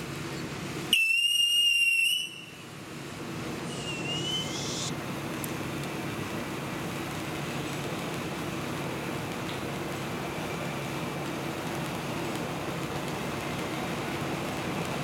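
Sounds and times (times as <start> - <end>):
firework fountain hissing: 0.1 - 15.0
shrill firework whistle: 0.9 - 2.6, 3.7 - 4.9.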